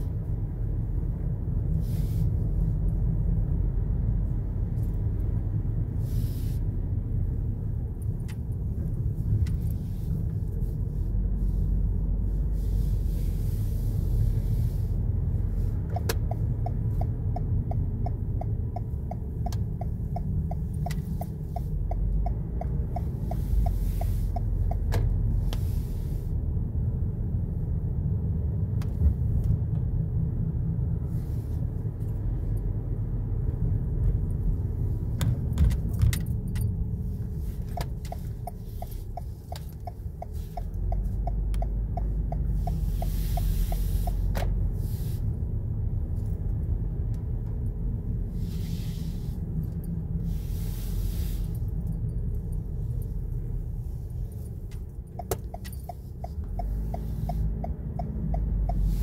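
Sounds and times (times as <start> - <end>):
car cabin road rumble: 0.0 - 59.0
light ticking: 37.6 - 44.2, 54.4 - 58.9.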